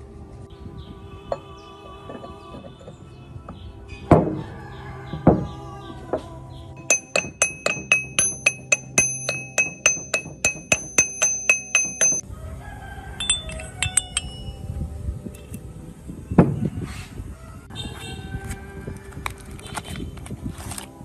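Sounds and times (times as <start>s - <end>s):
hammer striking steel gear: 6.8s - 12.2s, 13.2s - 14.5s
steel parts clinking: 6.8s - 12.2s, 13.2s - 14.7s.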